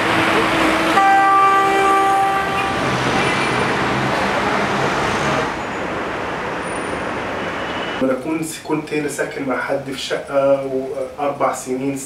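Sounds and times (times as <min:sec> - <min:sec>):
street traffic noise: 0:00.0 - 0:12.0
vehicle horn long note: 0:00.9 - 0:03.6.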